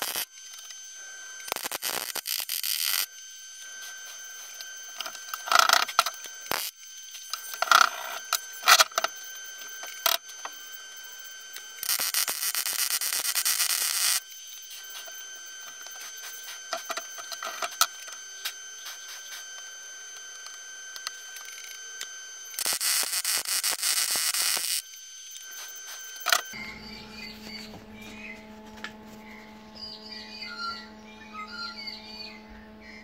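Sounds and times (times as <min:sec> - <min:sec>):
mig welder burst: 0:00.0 - 0:00.8, 0:01.4 - 0:03.1, 0:04.9 - 0:09.1, 0:11.6 - 0:19.5, 0:22.4 - 0:28.0
steady high whine: 0:00.0 - 0:33.0.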